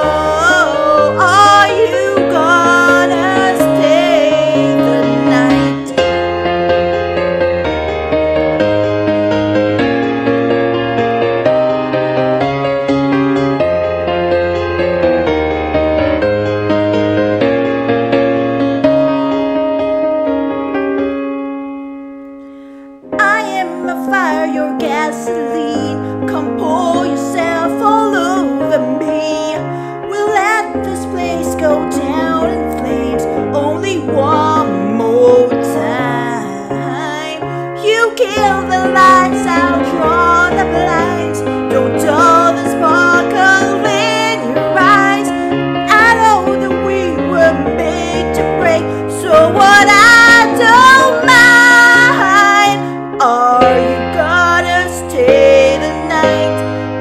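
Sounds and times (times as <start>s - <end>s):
woman singing: 0.0s - 6.2s, 23.1s - 57.0s
instrumental accompaniment: 0.0s - 23.9s
piano chords: 0.0s - 57.0s.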